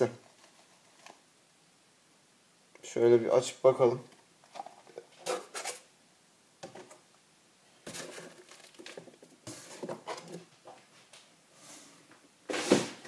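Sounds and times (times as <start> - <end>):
plastic containers crinkling: 4.1 - 5.9, 7.8 - 10.5.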